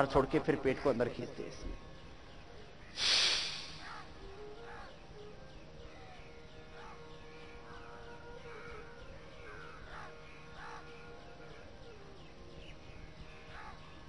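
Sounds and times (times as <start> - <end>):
birds calling: 0.0 - 14.0
forceful breath blown out: 3.0 - 4.0.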